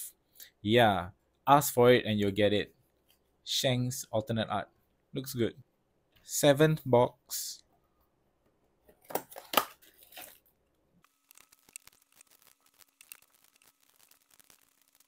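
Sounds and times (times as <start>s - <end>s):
foil packs crinkling: 9.3s - 10.5s, 11.1s - 15.0s.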